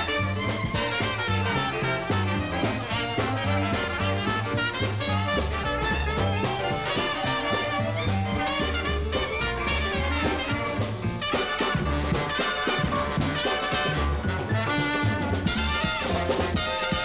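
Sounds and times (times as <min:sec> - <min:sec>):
jazz band playing live: 0:00.0 - 0:17.0
string bass steady beat: 0:00.0 - 0:17.0.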